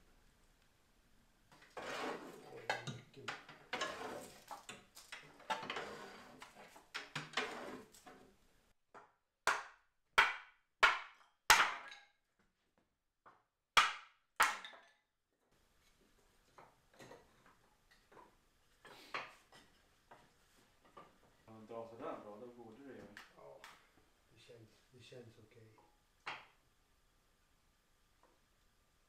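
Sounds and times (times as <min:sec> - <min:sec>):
sharp wooden knocks: 0:09.0 - 0:12.0, 0:13.8 - 0:14.8.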